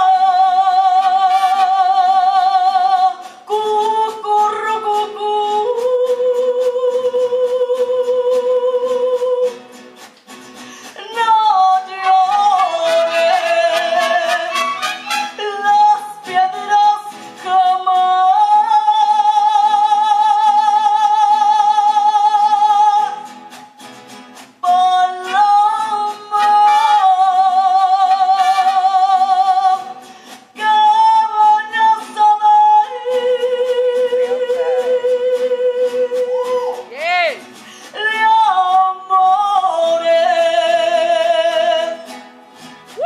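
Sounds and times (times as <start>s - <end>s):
woman singing with vibrato: 0.0s - 9.8s, 10.8s - 23.7s, 24.6s - 42.2s
strummed guitars: 0.0s - 43.0s
violins: 13.7s - 15.4s.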